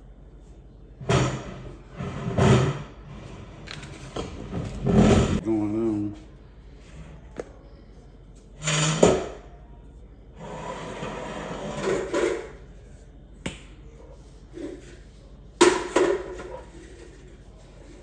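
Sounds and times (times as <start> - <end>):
objects clattering on kitchen counter: 1.0 - 5.4, 10.8 - 12.7, 14.5 - 18.0.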